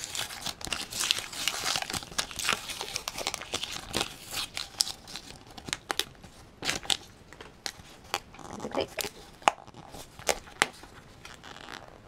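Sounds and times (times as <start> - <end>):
wrapper crinkling: 0.0 - 12.0.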